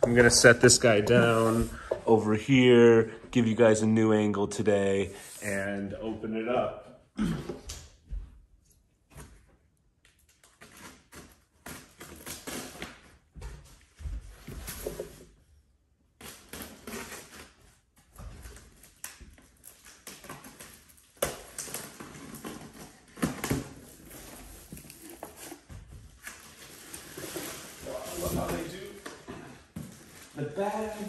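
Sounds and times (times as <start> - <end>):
cardboard rustling and scraping: 0.0 - 2.0, 21.8 - 31.0.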